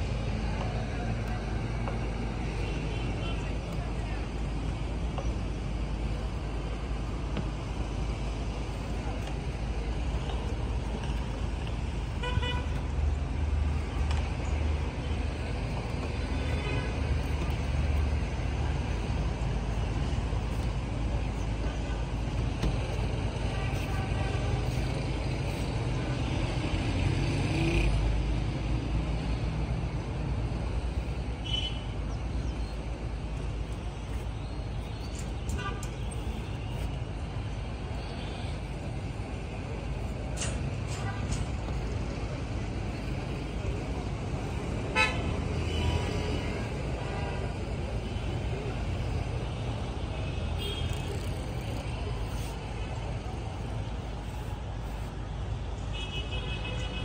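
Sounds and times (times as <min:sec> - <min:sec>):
road traffic rumble: 0:00.0 - 0:57.0
vehicle horns tooting: 0:12.2 - 0:12.8, 0:44.9 - 0:46.3, 0:50.5 - 0:51.3.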